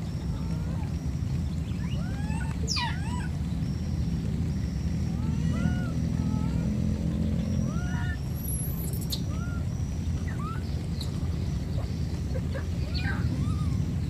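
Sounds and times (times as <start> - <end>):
steady low rumble: 0.0 - 14.0
baby monkey whimpering: 0.3 - 1.0, 1.8 - 3.4, 5.1 - 6.8, 7.6 - 10.7, 12.5 - 14.0.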